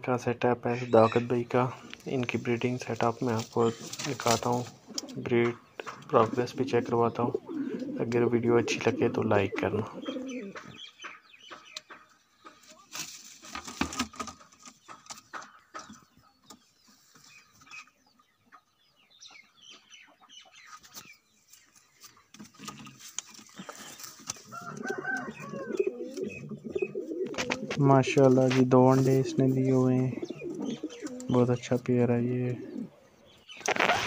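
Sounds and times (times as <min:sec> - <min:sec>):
pigeons cooing: 0:00.7 - 0:11.6, 0:22.4 - 0:34.0
knocks and rustles: 0:12.7 - 0:16.0, 0:22.3 - 0:24.5.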